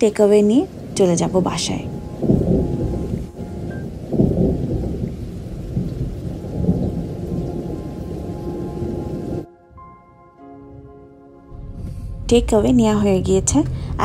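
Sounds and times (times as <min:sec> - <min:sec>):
heavy rain pouring: 0:00.0 - 0:09.5.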